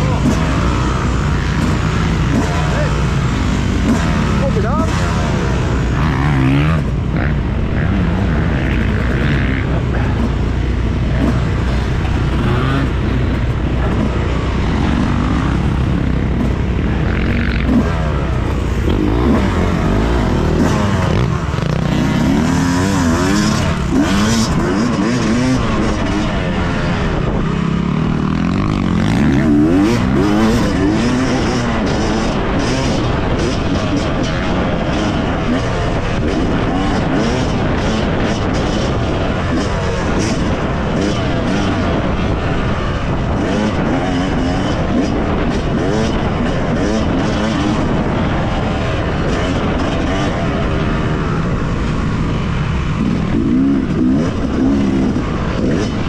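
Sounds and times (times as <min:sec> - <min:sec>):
motocross bike engine revving: 0:00.0 - 0:56.0.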